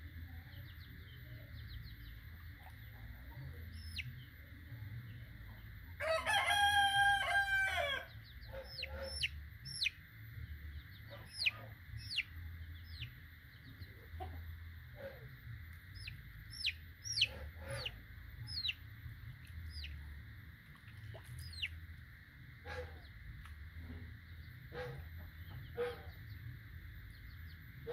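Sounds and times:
chicks peeping: 0.6s - 4.2s, 8.2s - 10.0s, 10.7s - 14.4s, 15.8s - 18.8s, 19.4s - 20.1s, 20.9s - 21.7s
rooster crowing: 6.0s - 8.1s.

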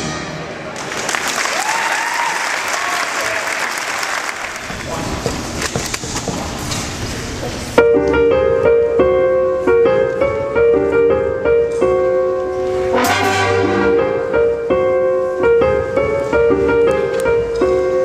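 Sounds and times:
jazz band playing held chords: 7.8s - 18.0s
cymbal crash accent: 13.0s - 14.2s.

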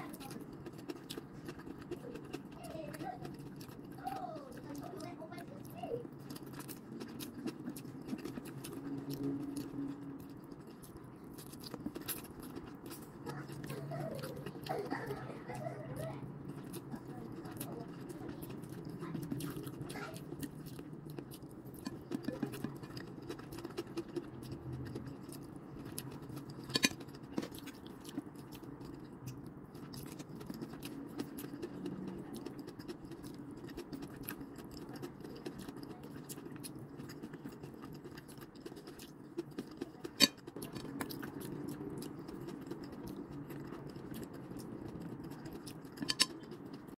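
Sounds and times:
person chewing noodles: 0.0s - 47.0s
steady low hum: 0.0s - 47.0s
chopsticks clicking on plate: 45.8s - 46.7s.

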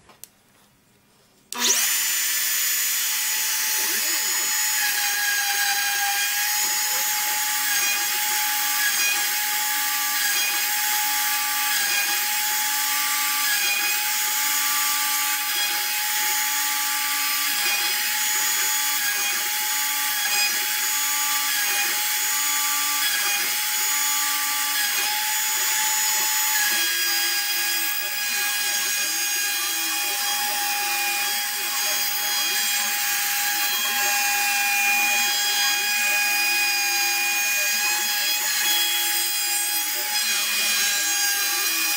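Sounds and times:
router motor high whine: 1.5s - 41.9s.

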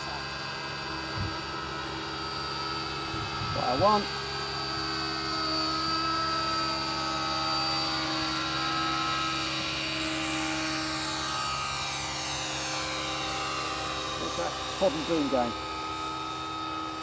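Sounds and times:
model helicopter rotor whine: 0.0s - 17.0s.

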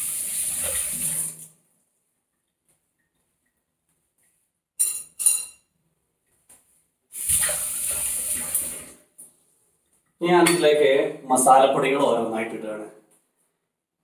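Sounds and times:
spoon clinking on steel vessel: 4.8s - 5.7s.

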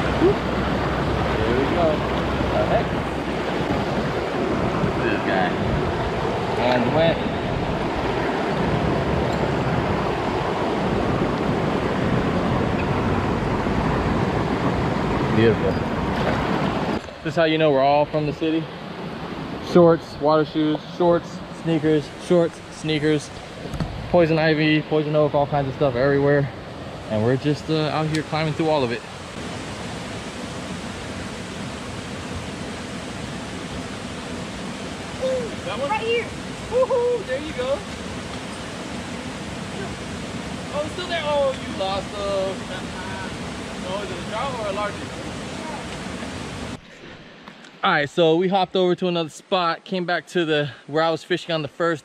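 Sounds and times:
river water flowing over rocks: 0.0s - 18.0s, 26.5s - 48.4s.

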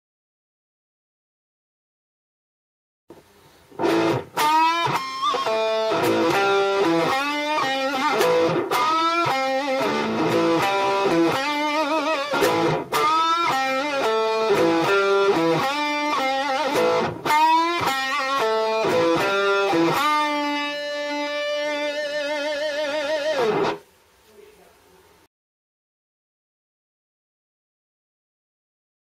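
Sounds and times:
distorted electric guitar riff: 3.7s - 23.9s.

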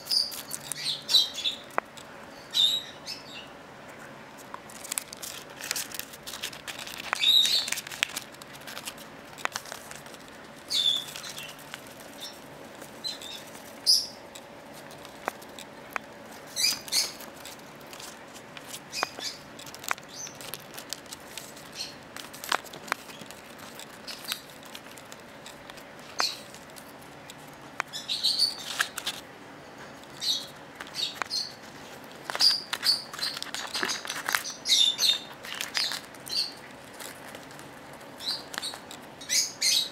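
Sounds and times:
bird chirping: 0.0s - 3.6s, 6.8s - 7.9s, 10.6s - 14.3s, 16.4s - 17.2s, 18.9s - 20.6s, 21.6s - 22.0s, 26.0s - 26.5s, 27.8s - 29.0s, 30.1s - 31.6s, 32.3s - 36.7s, 38.2s - 39.9s
paper rustling and ripping: 4.4s - 14.0s, 14.7s - 27.1s, 28.6s - 29.2s, 30.0s - 39.0s
sharp small clicks: 4.5s - 29.2s.

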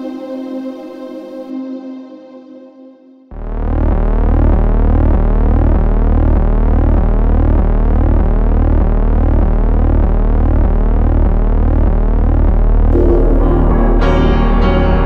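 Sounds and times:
electronic music: 3.3s - 15.0s.

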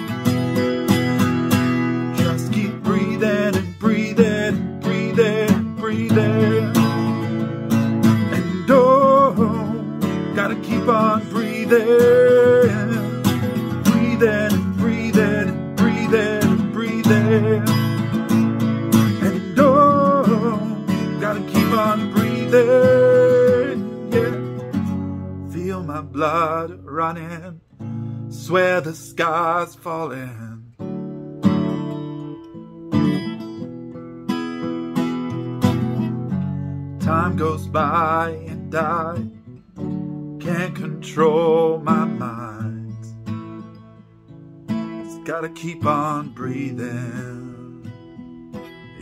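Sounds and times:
acoustic guitar strumming: 0.0s - 49.0s
person singing: 1.8s - 24.7s, 25.5s - 27.6s, 37.0s - 39.3s, 40.4s - 43.2s, 45.0s - 47.9s.

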